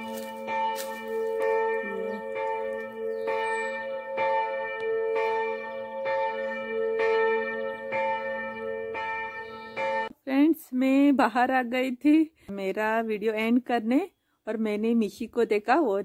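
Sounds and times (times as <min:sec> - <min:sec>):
church bell ringing: 0:00.0 - 0:10.1.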